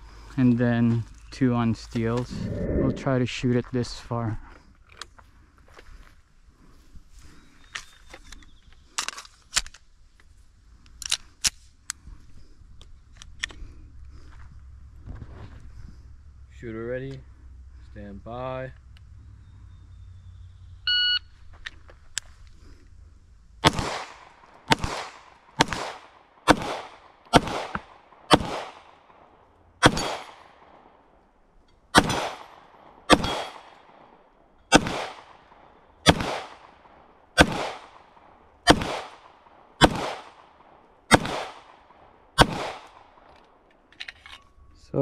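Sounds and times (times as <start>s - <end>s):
shot timer beep: 20.9s - 21.2s
pistol shots with echo: 23.6s - 31.0s, 31.9s - 43.2s.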